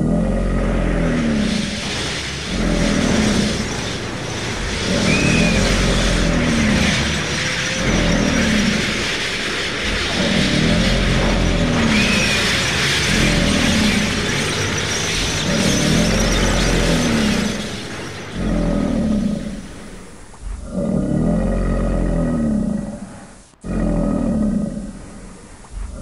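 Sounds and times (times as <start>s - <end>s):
low pulsing loop: 0.0s - 26.0s
monster roars: 0.0s - 26.0s
loud fire whoosh: 0.4s - 20.6s.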